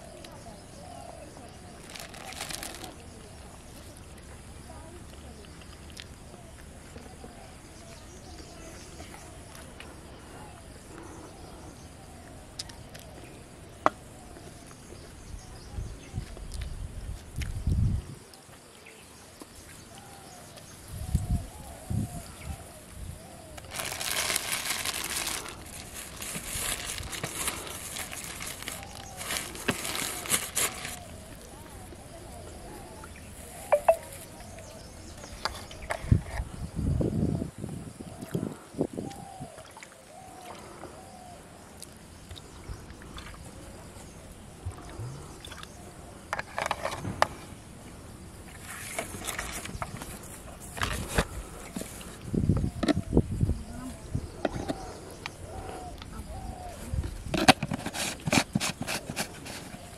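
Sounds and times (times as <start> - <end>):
plastic bag crinkling: 1.8 - 3.0, 23.6 - 31.0
plastic rustling: 1.8 - 3.0, 23.6 - 31.1.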